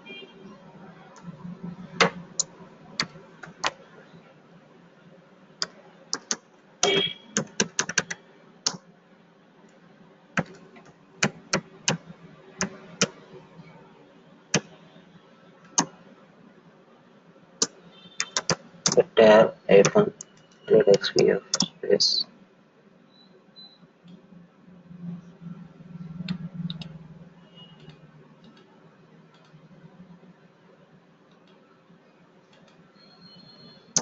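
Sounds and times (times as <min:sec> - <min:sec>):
computer keyboard typing: 0:01.2 - 0:03.8, 0:05.6 - 0:08.8, 0:10.4 - 0:13.3, 0:17.6 - 0:19.0, 0:19.8 - 0:21.8.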